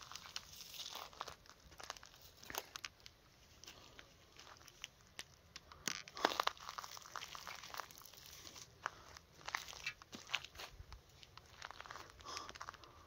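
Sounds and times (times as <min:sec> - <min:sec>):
dry leaves crunching underfoot: 0:00.0 - 0:02.9, 0:06.0 - 0:12.8.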